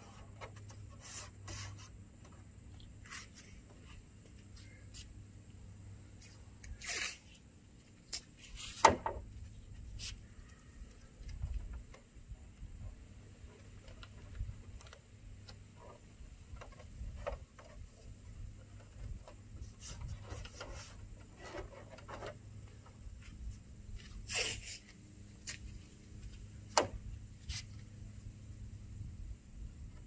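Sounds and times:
hands rubbing tape: 6.2 - 7.4, 9.9 - 10.6, 19.6 - 21.9, 23.5 - 25.7, 27.4 - 27.8.

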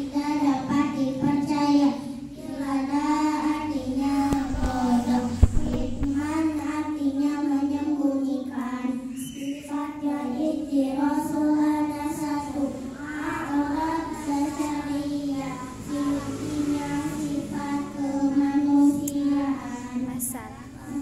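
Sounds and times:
girls singing together: 2.1 - 7.8, 8.9 - 20.1
brief thump: 4.3 - 6.2.

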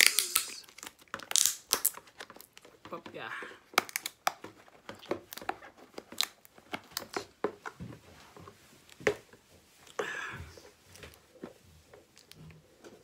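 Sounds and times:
plastic case clicking and crackling: 0.0 - 7.7
plastic case snapping: 3.7 - 4.5.

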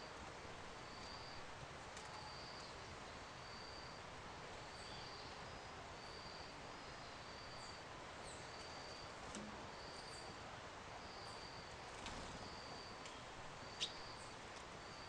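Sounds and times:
steady background hiss: 0.0 - 15.0
small birds chirping: 4.7 - 10.4, 11.0 - 15.0.

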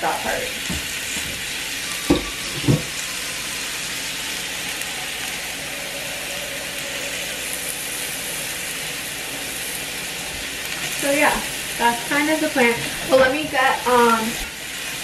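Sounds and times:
faucet running into pot: 1.8 - 15.0.

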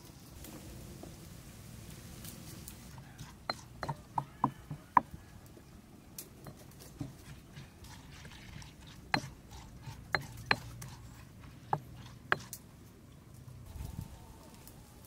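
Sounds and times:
wet paste mashing: 3.0 - 5.1, 6.4 - 12.5
stone pestle knocking in mortar: 3.2 - 5.2, 6.4 - 7.2, 9.1 - 11.1, 11.7 - 12.5.

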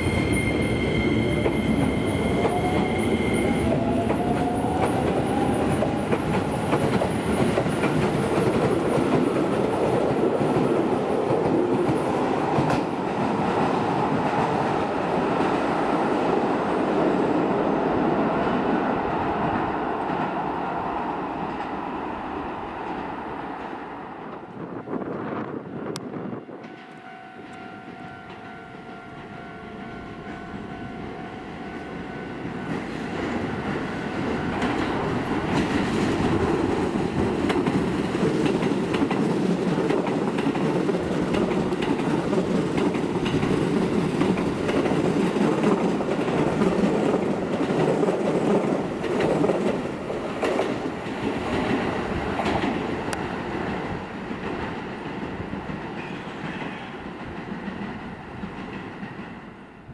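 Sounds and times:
steady high tone: 0.0 - 6.4
electric train passing: 0.0 - 59.9.

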